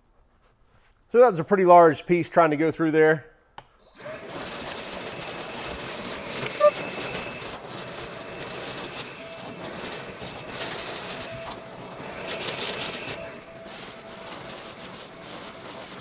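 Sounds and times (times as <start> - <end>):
shop vacuum running: 3.8 - 16.0
wood chips rattling in hose: 4.0 - 16.0.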